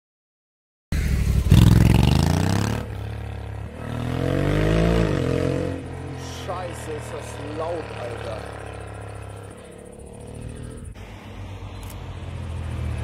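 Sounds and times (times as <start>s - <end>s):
motorcycle engine accelerating: 0.9s - 13.0s.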